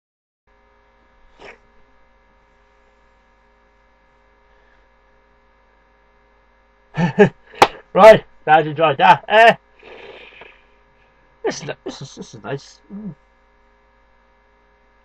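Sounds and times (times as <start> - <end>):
electrical mains hum: 0.5 - 15.0.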